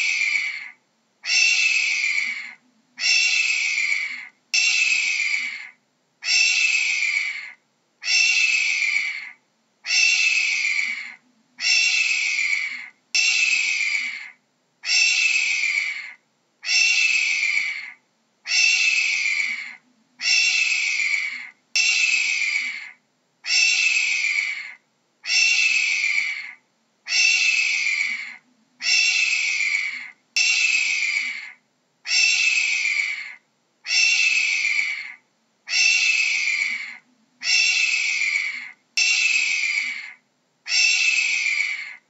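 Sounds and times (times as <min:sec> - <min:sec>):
hawk screeching: 0:01.3 - 0:09.3, 0:18.5 - 0:26.5, 0:27.1 - 0:42.0.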